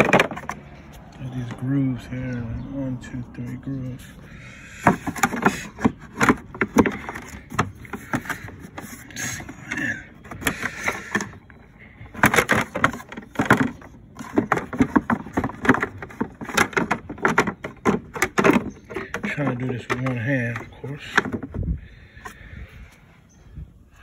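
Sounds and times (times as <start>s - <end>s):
plastic panel clicks and knocks: 0.0s - 0.6s, 4.8s - 11.4s, 12.1s - 21.6s.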